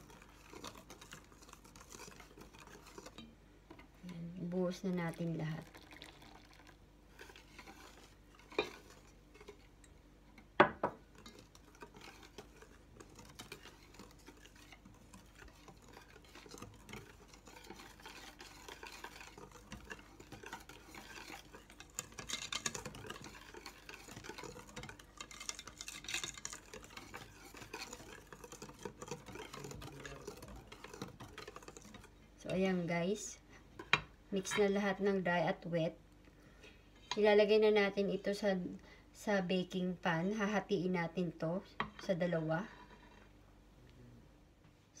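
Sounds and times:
whisk scraping metal bowl: 0:00.0 - 0:33.2.

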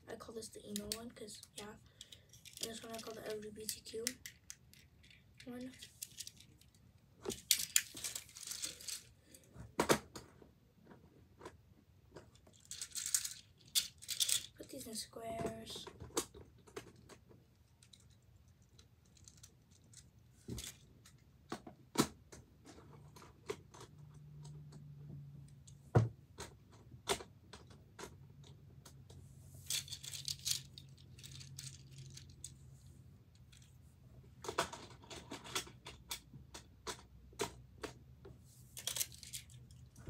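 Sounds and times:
fidget toys rattling: 0:00.2 - 0:09.4, 0:12.2 - 0:15.8, 0:16.7 - 0:21.2, 0:29.6 - 0:33.8, 0:38.7 - 0:40.0
fidget toys clicking and knocking: 0:00.4 - 0:10.4, 0:11.4 - 0:32.6, 0:34.4 - 0:38.0, 0:38.8 - 0:40.0.

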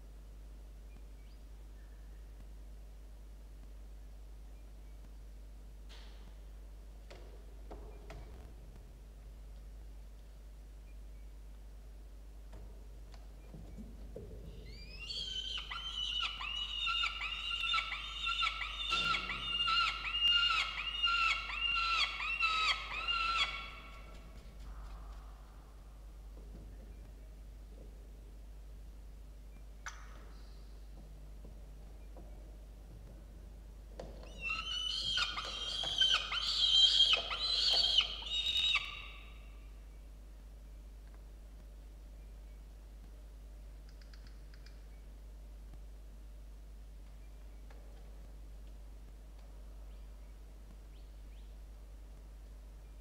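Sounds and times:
falcon calling harsh squealing notes: 0:14.7 - 0:24.0, 0:34.3 - 0:39.2.

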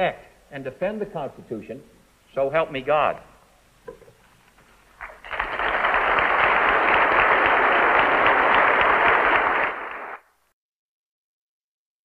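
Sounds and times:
audience applauding: 0:05.0 - 0:10.3.

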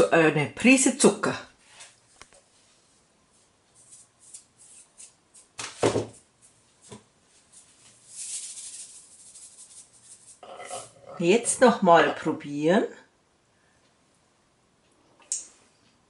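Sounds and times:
soft sprinkling rustle: 0:01.6 - 0:11.2
salt shaker rattling: 0:08.0 - 0:10.4.

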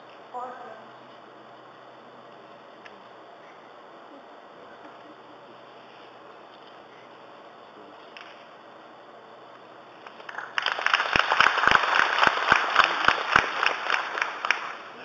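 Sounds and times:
audience applauding: 0:10.0 - 0:15.0.

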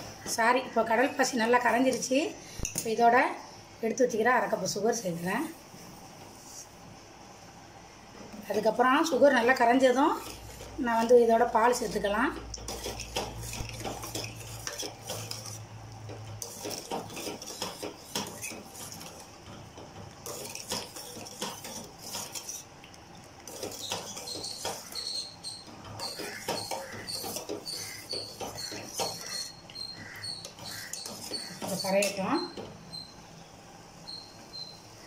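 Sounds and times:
ladle scraping metal pot: 0:09.4 - 0:32.7.

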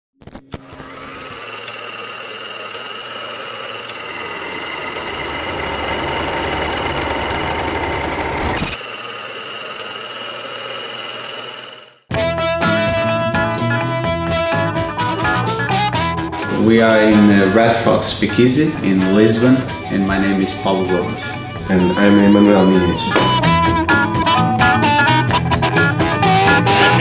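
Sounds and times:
small machine motor whirring: 0:00.6 - 0:12.1.

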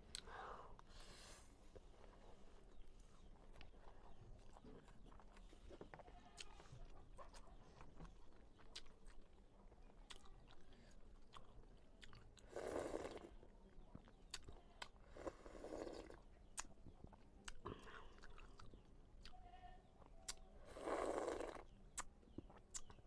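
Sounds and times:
wet mouth clicks and chewing: 0:02.7 - 0:15.0, 0:15.8 - 0:19.4, 0:20.0 - 0:20.6, 0:21.5 - 0:23.0.

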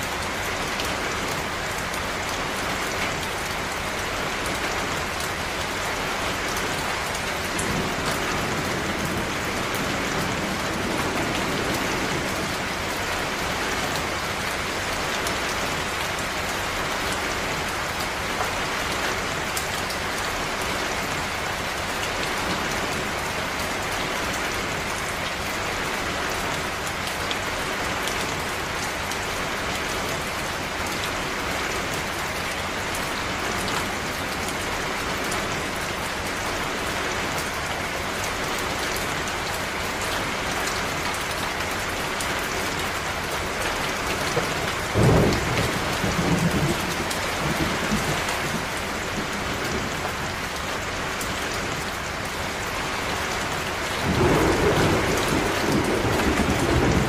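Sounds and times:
steady rain falling: 0:00.0 - 0:57.0
thunder clap rumbling: 0:44.2 - 0:50.0, 0:54.0 - 0:57.0.

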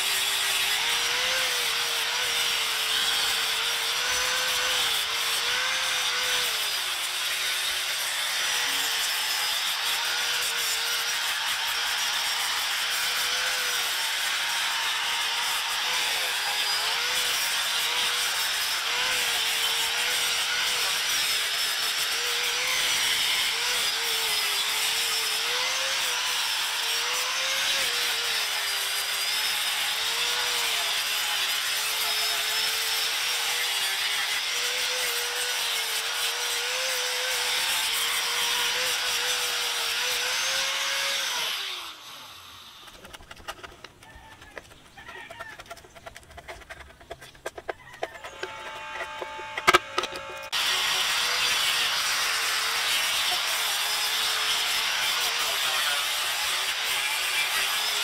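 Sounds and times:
power tool cutting wood: 0:00.0 - 0:58.0.

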